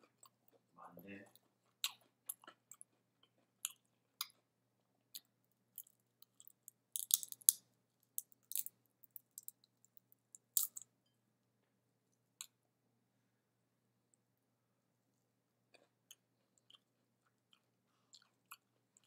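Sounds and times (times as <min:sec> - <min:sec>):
close chewing and mouth clicks: 0:00.0 - 0:04.5, 0:05.1 - 0:07.6, 0:15.7 - 0:19.0.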